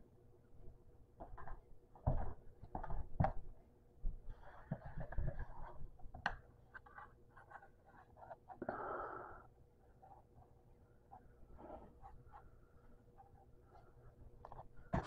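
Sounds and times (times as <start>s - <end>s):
rustling and scratching: 4.1s - 8.6s, 13.1s - 15.0s.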